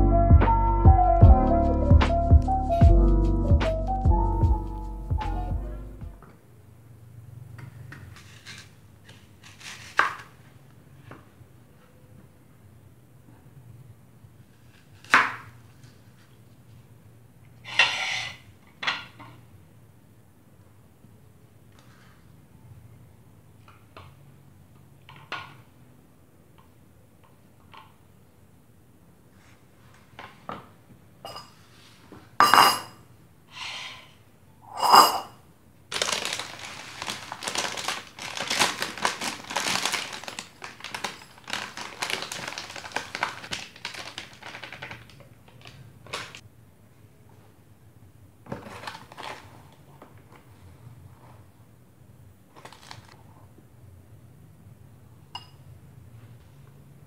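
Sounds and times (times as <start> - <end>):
food rustling and scraping: 7.8 - 10.4, 35.9 - 46.4, 48.5 - 51.6, 52.5 - 53.2
metal spoon clinking on bowl: 34.8 - 35.3, 55.4 - 55.6.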